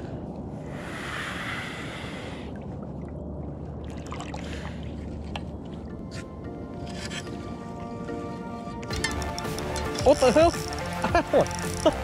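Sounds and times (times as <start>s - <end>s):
wind: 0.0s - 12.0s.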